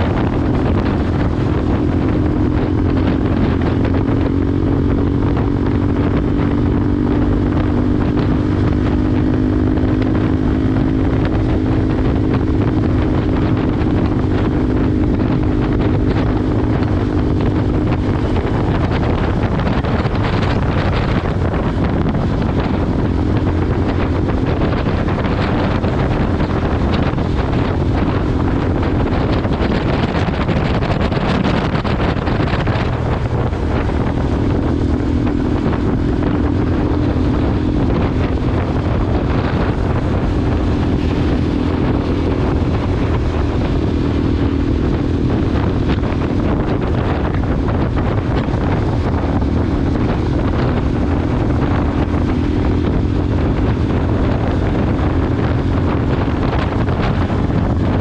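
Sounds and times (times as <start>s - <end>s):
motorcycle engine hum: 0.0s - 58.0s
wind noise on microphone: 0.0s - 58.0s.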